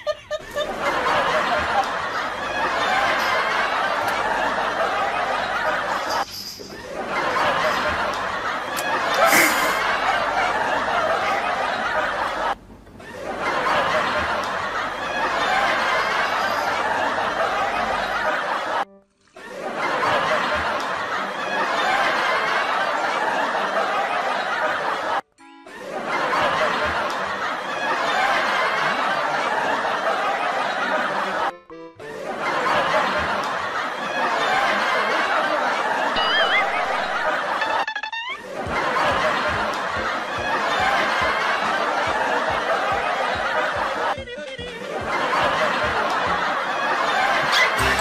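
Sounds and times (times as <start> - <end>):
laugh track: 0.0 - 48.0
background music: 14.6 - 48.0.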